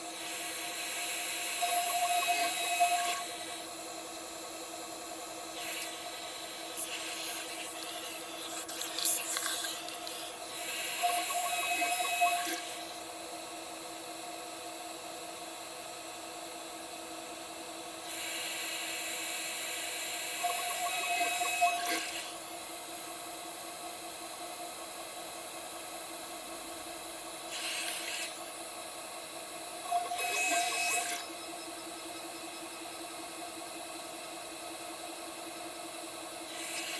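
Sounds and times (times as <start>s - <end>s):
router spindle whining: 10.0s - 13.1s.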